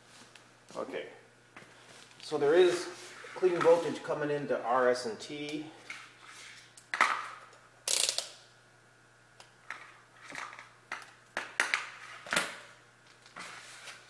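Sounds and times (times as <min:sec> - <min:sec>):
low electrical hum: 0:00.0 - 0:14.0
scraping rustle: 0:01.8 - 0:04.2.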